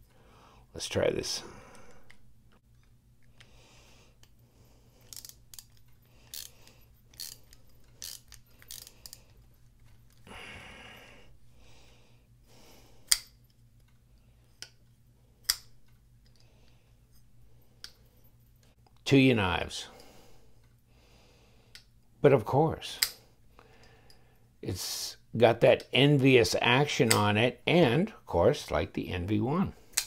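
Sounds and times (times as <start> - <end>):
knife metallic snaps: 13.1 - 13.4.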